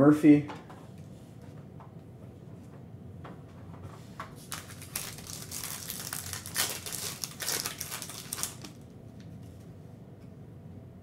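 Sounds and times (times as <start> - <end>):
foil wrapper crinkling: 4.4 - 8.9.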